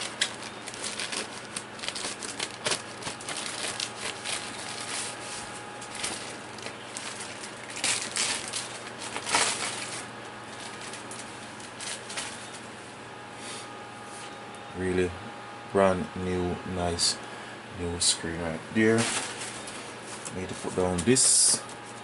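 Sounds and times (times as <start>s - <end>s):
plastic packaging crinkling: 0.0s - 12.8s, 18.8s - 22.0s.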